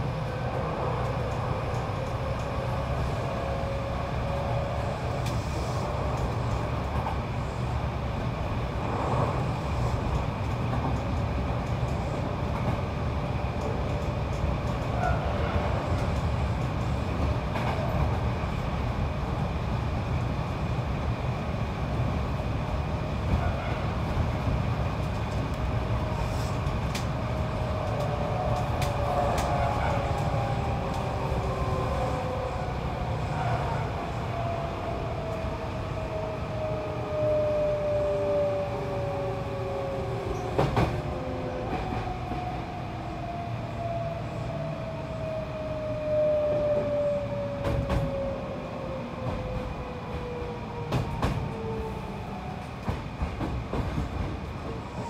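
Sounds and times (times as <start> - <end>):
train rumbling on rails: 0.0 - 55.0.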